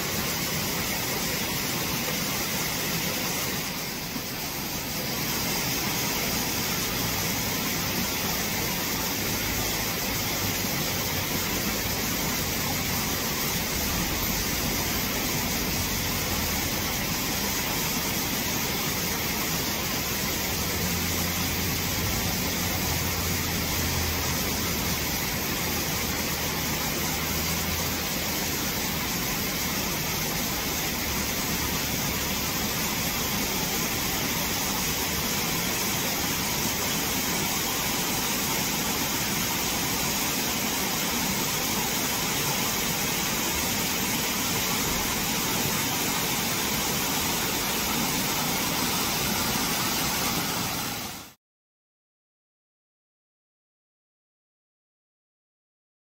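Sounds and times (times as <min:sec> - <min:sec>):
stream flowing over stones: 0:00.0 - 0:51.4.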